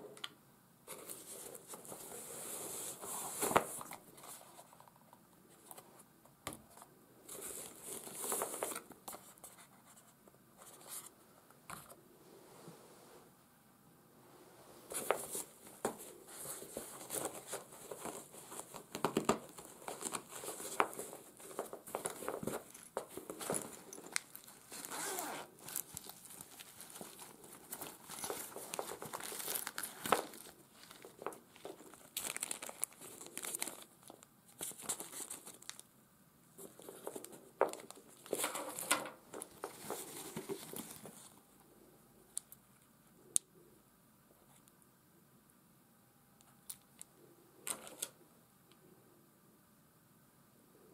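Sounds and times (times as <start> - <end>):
nylon bag rustling and crinkling: 14.9 - 35.8.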